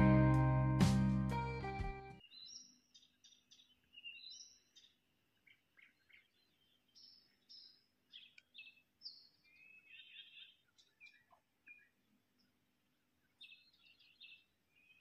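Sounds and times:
nightingale singing: 0:02.2 - 0:11.9.

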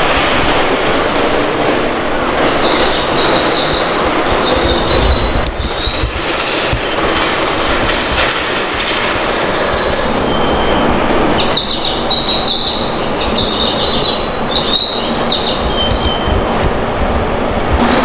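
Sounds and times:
train wheels rumbling on rail: 0:00.0 - 0:18.0
high-pitched wheel squeals: 0:10.0 - 0:17.0.

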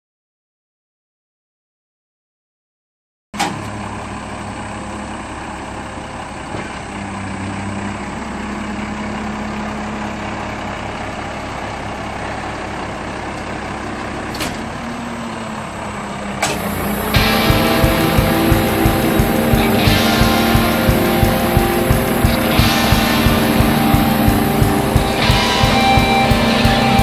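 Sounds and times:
hydraulics working: 0:03.4 - 0:27.0
truck engine running: 0:03.5 - 0:27.0.

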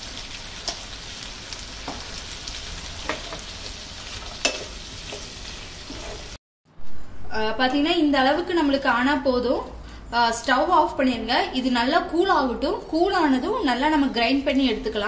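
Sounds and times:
food sizzling in a frying pan: 0:00.0 - 0:06.4.

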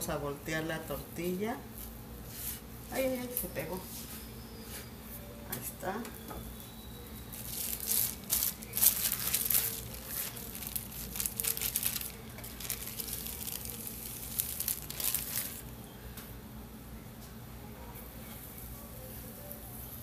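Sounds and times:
plastic sheets crinkling: 0:07.3 - 0:15.7.

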